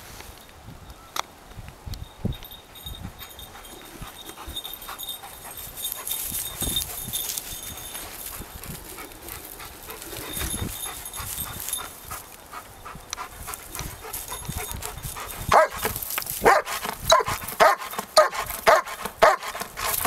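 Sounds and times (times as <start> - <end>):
footsteps through grass: 5.3 - 20.0
dog barking: 15.5 - 19.6.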